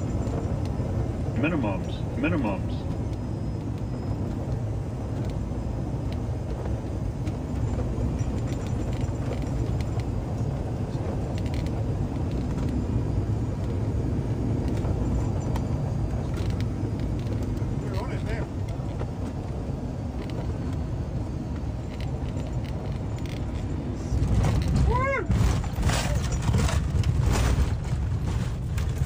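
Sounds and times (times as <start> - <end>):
jet engine rumble and airflow: 0.0 - 29.0
light clicks and rattles: 6.0 - 12.8, 14.6 - 20.9, 21.5 - 29.0.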